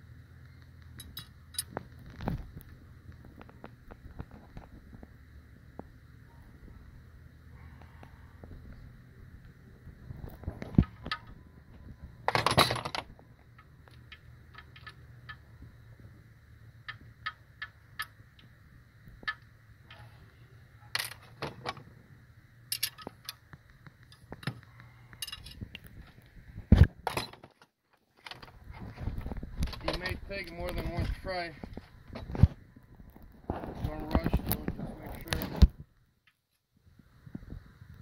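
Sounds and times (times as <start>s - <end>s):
hand tools clicking on metal: 24.0s - 25.8s.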